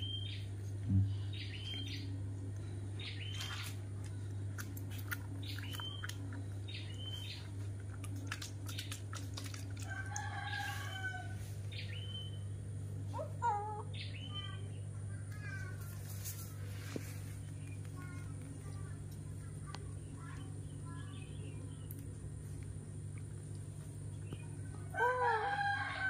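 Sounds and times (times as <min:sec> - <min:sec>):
steady low hum: 0:00.0 - 0:26.0
rooster crowing: 0:09.8 - 0:11.6, 0:24.9 - 0:26.0.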